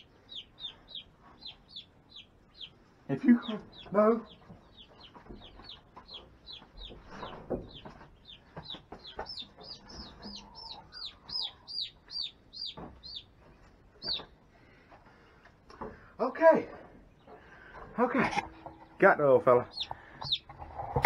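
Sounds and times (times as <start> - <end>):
chick peeping loudly: 0.0 - 14.4, 19.6 - 20.6.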